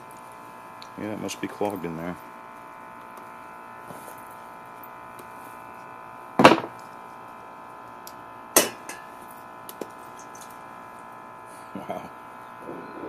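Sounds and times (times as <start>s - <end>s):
steady buzz: 0.0s - 13.0s
sharp knocks on table: 6.4s - 6.7s.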